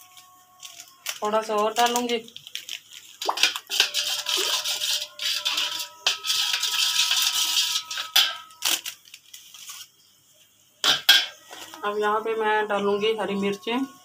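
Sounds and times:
metal spoon stirring in steel bowl: 3.0 - 9.1
bowl ringing: 3.8 - 8.7.

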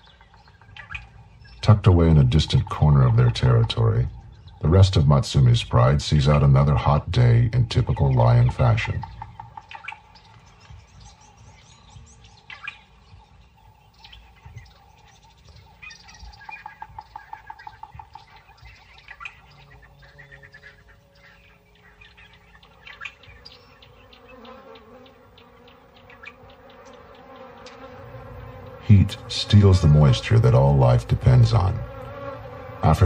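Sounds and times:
insects buzzing: 0.0 - 33.0
rapid chirping trill: 8.8 - 33.0.

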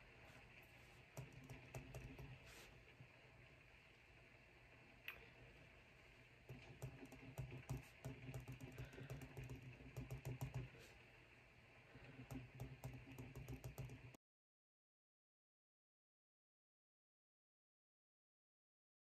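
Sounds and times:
pen scratching on paper: 6.5 - 11.0.

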